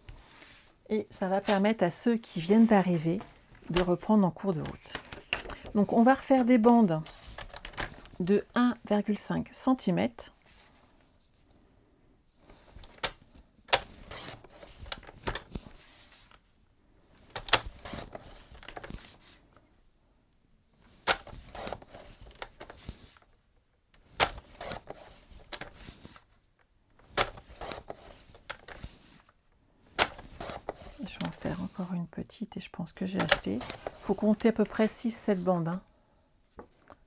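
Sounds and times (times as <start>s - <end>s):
paper sliding and shuffling: 0.0s - 0.8s, 1.4s - 4.0s, 13.8s - 16.4s, 17.6s - 19.5s, 20.9s - 23.3s, 24.3s - 26.3s, 27.3s - 29.3s, 30.1s - 32.1s, 33.1s - 35.7s.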